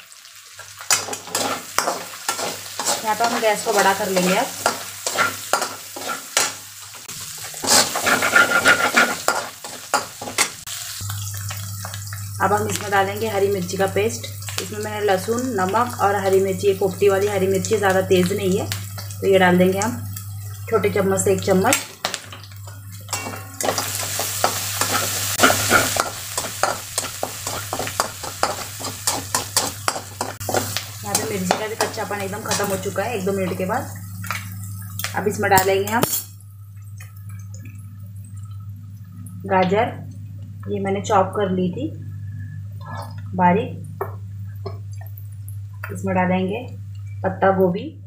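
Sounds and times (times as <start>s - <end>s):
oil sizzling: 0.0s - 47.4s
metal spatula scraping pan: 0.9s - 6.6s, 7.5s - 10.5s, 23.1s - 32.8s.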